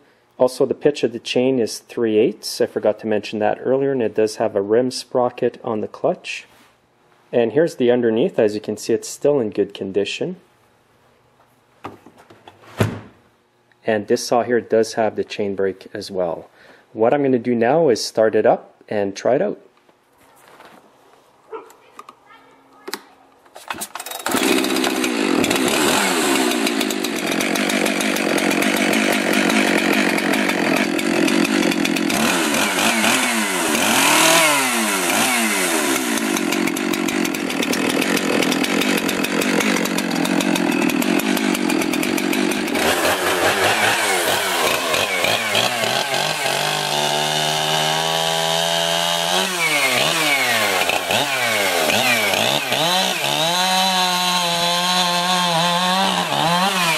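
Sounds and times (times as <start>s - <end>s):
chainsaw revving: 23.7s - 56.9s.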